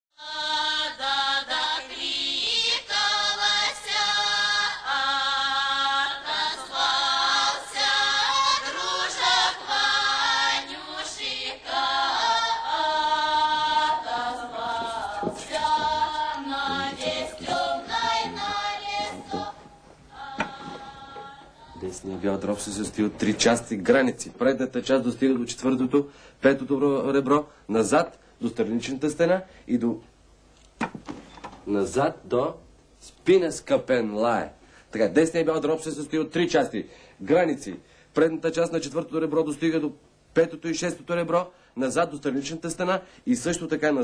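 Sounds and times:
choral singing: 0:00.1 - 0:23.6.

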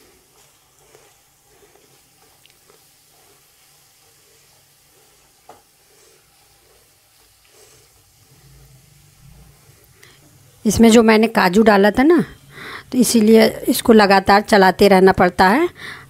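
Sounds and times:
spatula stirring food: 0:00.0 - 0:10.6
food sizzling faintly in a pan: 0:00.0 - 0:16.0.

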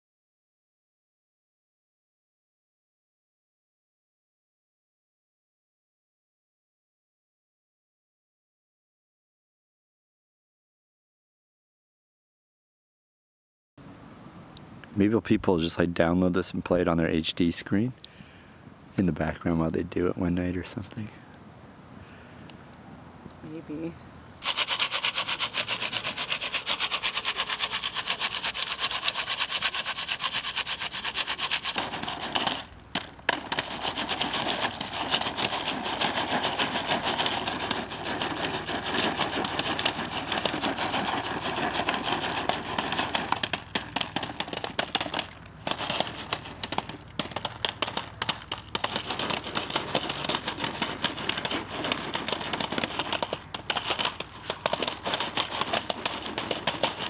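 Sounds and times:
foil pan scraping rattle: 0:24.4 - 0:57.0.

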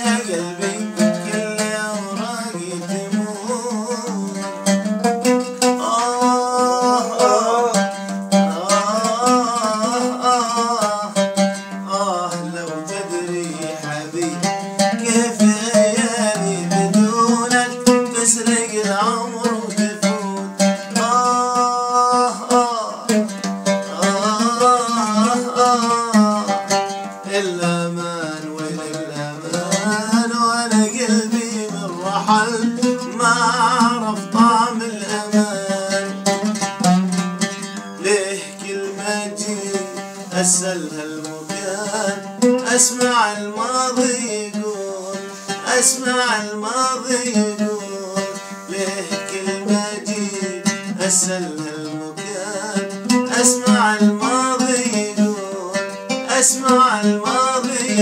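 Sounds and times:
oud plucking: 0:00.0 - 0:58.0
man singing held notes: 0:06.0 - 0:07.9.

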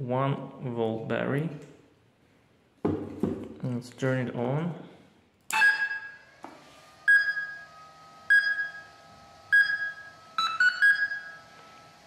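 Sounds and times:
electronic beeps and tones: 0:09.5 - 0:11.4.

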